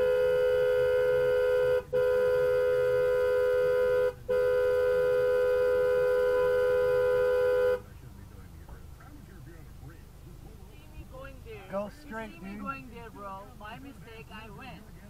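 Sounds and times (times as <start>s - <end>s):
car horn blasts: 0.0s - 7.9s.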